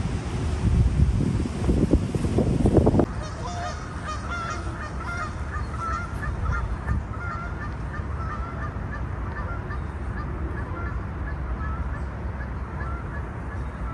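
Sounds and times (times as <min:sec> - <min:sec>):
wind buffeting microphone: 0:00.0 - 0:13.9
geese honking: 0:03.1 - 0:13.9.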